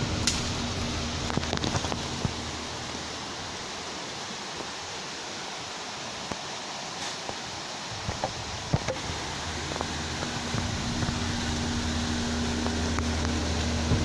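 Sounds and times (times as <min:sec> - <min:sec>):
forest ambience hiss: 0:00.0 - 0:14.0
branches snapping and rustling: 0:00.2 - 0:02.4.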